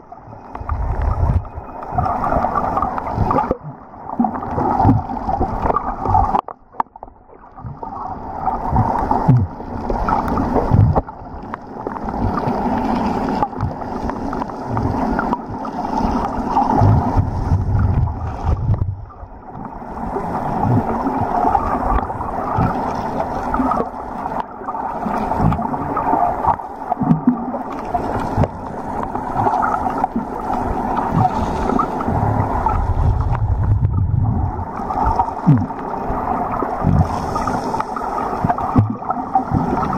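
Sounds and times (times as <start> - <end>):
water rushing and gurgling underwater: 0.0 - 39.9
low thuds: 32.1 - 34.5.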